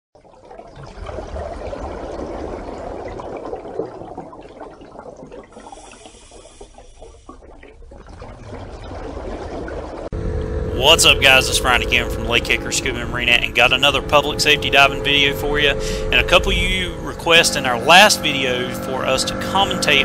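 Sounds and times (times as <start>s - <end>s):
running water: 0.2s - 10.2s.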